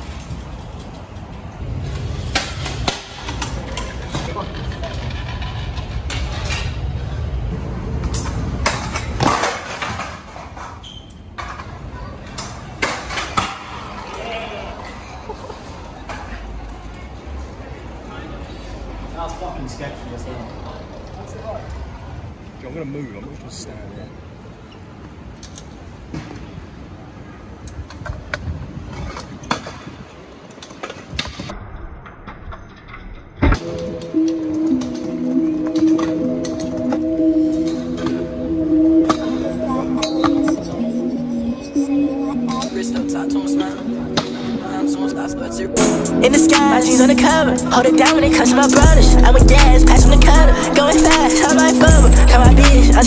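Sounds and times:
scooters clacking on stone paving: 0:00.0 - 0:22.3, 0:27.6 - 0:31.6, 0:41.8 - 0:53.0
street hubbub: 0:00.0 - 0:31.6, 0:33.5 - 0:53.0
skateboard wheels rolling on concrete: 0:00.0 - 0:53.0.

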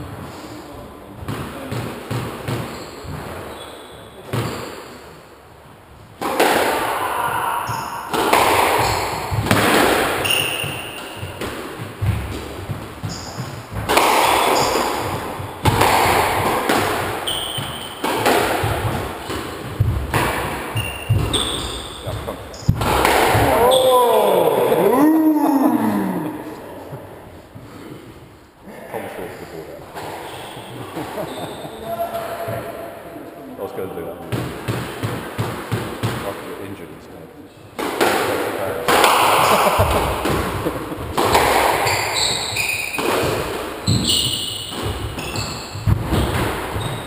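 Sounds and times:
squash ball hitting rackets and walls: 0:01.2 - 0:05.2, 0:05.9 - 0:28.1, 0:29.9 - 0:33.1, 0:33.9 - 0:36.8, 0:37.7 - 0:47.0.

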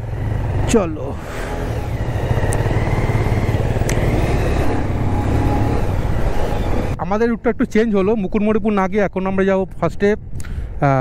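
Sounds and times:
motorcycle engine running: 0:00.0 - 0:07.0.

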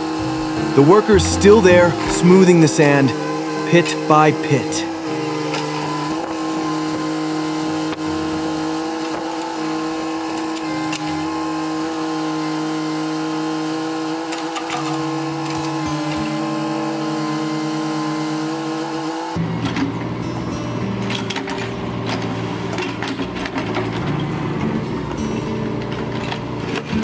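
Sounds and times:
excavator diesel engine: 0:00.0 - 0:09.0.

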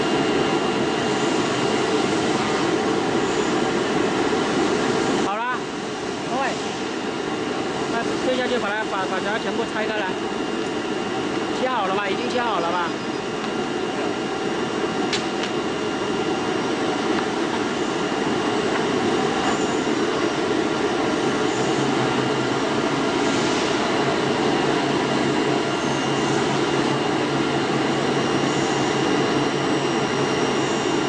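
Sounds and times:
cutting machine drone with whine: 0:00.0 - 0:31.0.

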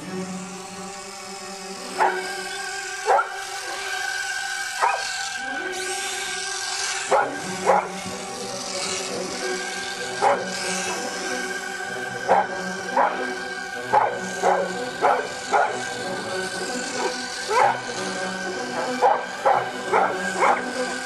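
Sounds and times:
steady whine of held tones: 0:00.0 - 0:21.0
dog barking: 0:02.0 - 0:02.2, 0:03.1 - 0:03.3, 0:04.8 - 0:05.0, 0:07.1 - 0:07.9, 0:10.2 - 0:10.5, 0:12.3 - 0:13.3, 0:13.9 - 0:15.8, 0:17.0 - 0:17.8, 0:18.9 - 0:20.7.

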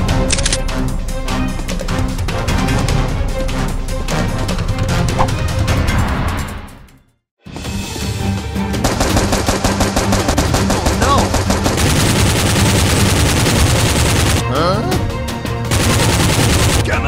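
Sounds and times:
background music: 0:00.0 - 0:17.0
automatic gunfire: 0:08.8 - 0:14.4, 0:15.7 - 0:17.0.

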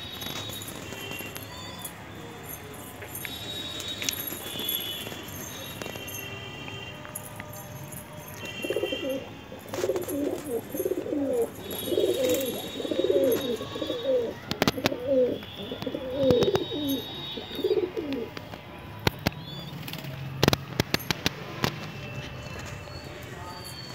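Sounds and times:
pigeons cooing: 0:08.7 - 0:18.3.

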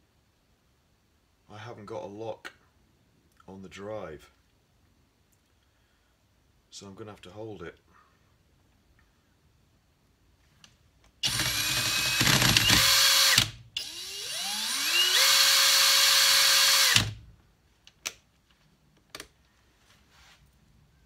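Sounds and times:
cordless drill spinning: 0:11.2 - 0:17.2.

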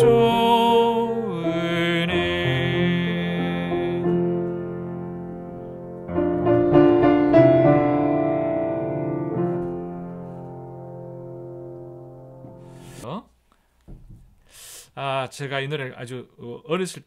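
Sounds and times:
keyboard playing chords: 0:00.0 - 0:13.0.

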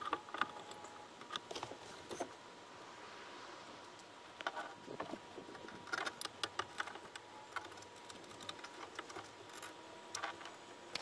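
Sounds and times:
hands clicking and tapping wiring: 0:03.9 - 0:11.0.

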